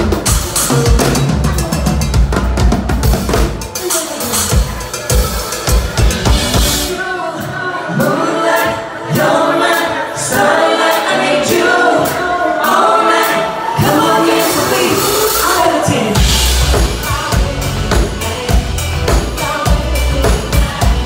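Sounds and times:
live band music: 0:00.0 - 0:21.0
heavy drum kit hits: 0:04.5 - 0:07.0, 0:15.0 - 0:21.0
several voices singing: 0:06.5 - 0:21.0.

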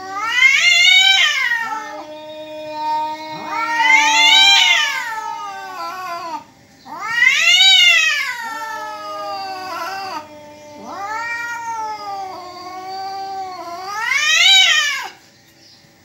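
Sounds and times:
cats yowling: 0:00.0 - 0:15.2.

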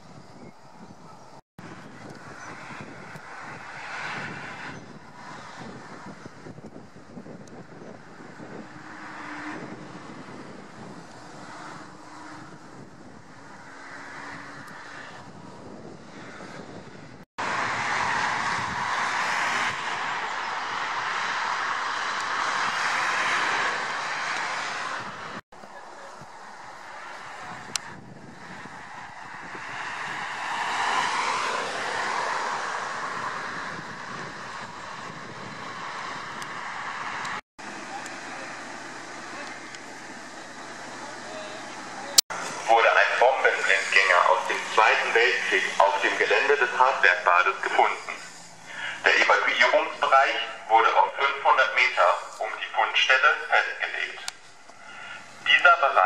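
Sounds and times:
road and tyre noise: 0:00.0 - 0:56.0
car passing: 0:01.6 - 0:56.0
faint engine hum: 0:37.6 - 0:56.0.

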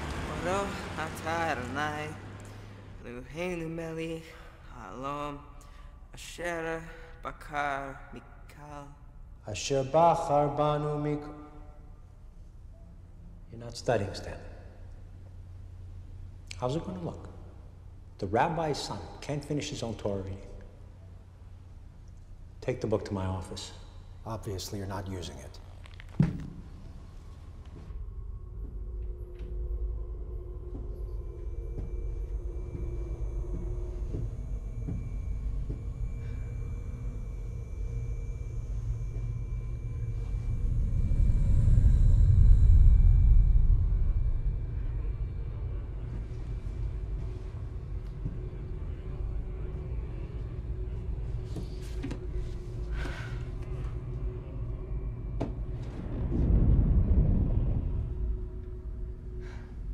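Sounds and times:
ominous ambient drone: 0:00.0 - 0:59.9
faint held tone: 0:29.6 - 0:56.2.

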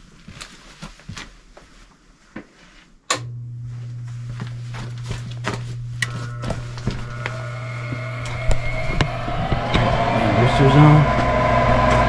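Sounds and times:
inducer motor humming: 0:03.1 - 0:12.0
high-pitched whine: 0:04.0 - 0:12.0.

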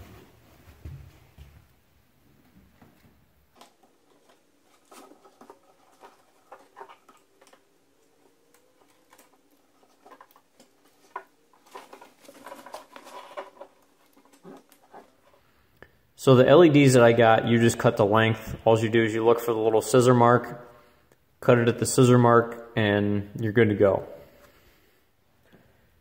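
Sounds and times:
adhesive tape crackling: 0:03.6 - 0:15.3.

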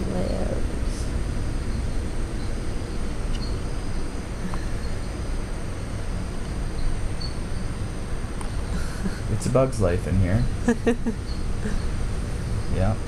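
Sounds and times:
ceiling fan rumble: 0:00.0 - 0:13.0
night insects trilling and chirping: 0:00.0 - 0:13.0.

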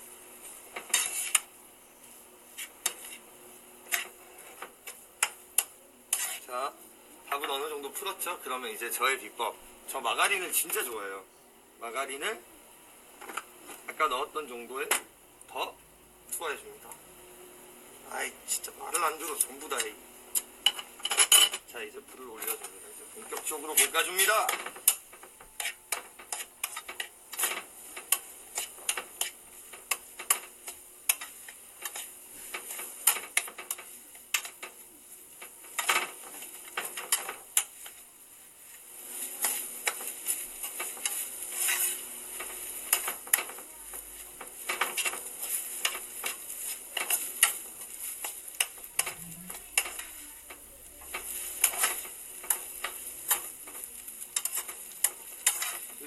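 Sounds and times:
food sizzling: 0:00.0 - 0:11.0, 0:16.3 - 0:56.0
utensil scraping a pan: 0:00.4 - 0:01.5, 0:02.5 - 0:06.5, 0:22.4 - 0:38.0, 0:38.6 - 0:56.0.

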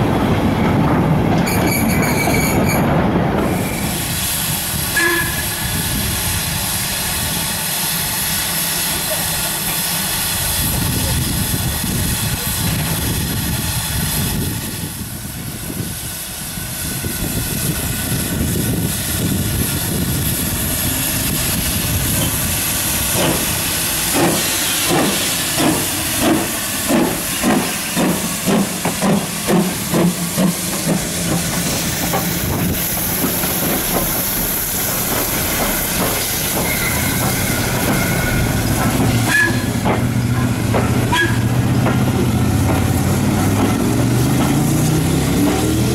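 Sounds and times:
coaches rumbling on rails: 0:00.0 - 0:45.9
wheel squeal: 0:01.4 - 0:02.9, 0:36.4 - 0:39.8
steam hissing: 0:03.5 - 0:45.9
steam locomotive exhaust beats: 0:03.5 - 0:45.9.

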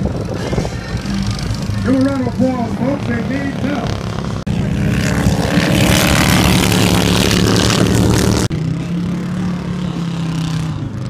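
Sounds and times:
steady quieter engine note: 0:00.0 - 0:10.9
hot rod engines racing past: 0:00.0 - 0:11.0.

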